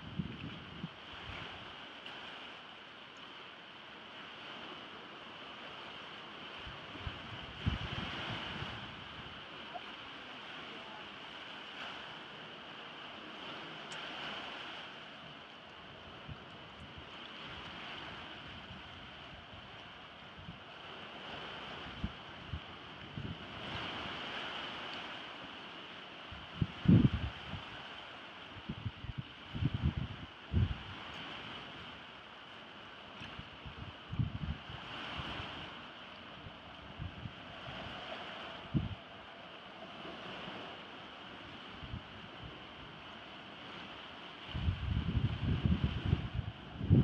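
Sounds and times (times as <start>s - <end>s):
wind buffeting microphone: 0.0s - 1.8s, 6.6s - 9.9s, 15.9s - 24.7s, 26.3s - 27.9s, 28.6s - 31.9s, 33.2s - 40.7s, 41.3s - 43.1s, 44.4s - 47.0s
small waves on rocky shore: 0.0s - 47.0s.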